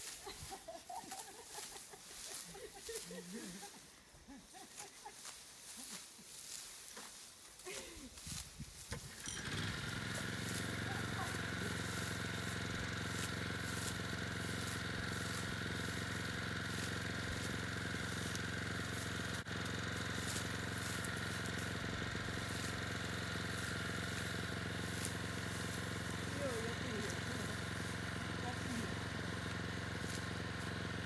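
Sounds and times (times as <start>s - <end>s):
small engine buzzing drone: 9.1s - 31.0s.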